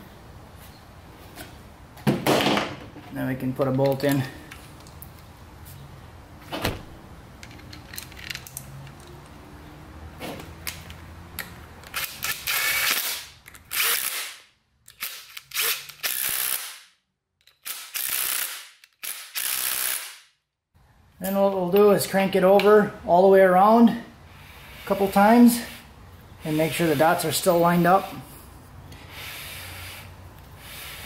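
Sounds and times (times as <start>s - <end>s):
clicks of parts handled: 7.4s - 9.4s, 10.3s - 13.7s, 17.4s - 18.0s.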